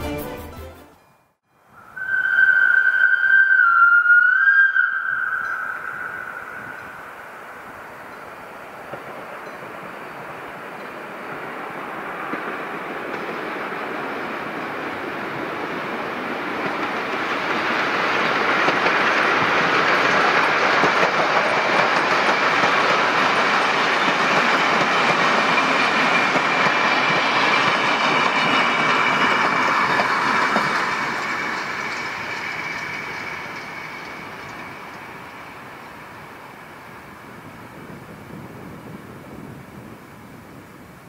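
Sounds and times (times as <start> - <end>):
thin steady squeal: 1.8 - 8.6, 25.4 - 37.2
train wheels clattering over rails: 7.5 - 39.6.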